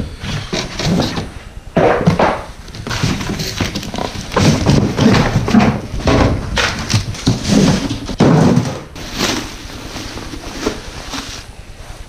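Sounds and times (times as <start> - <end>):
cardboard carton scraping: 0.2 - 1.3, 2.0 - 11.5
plastic wrap rustling: 9.0 - 11.5.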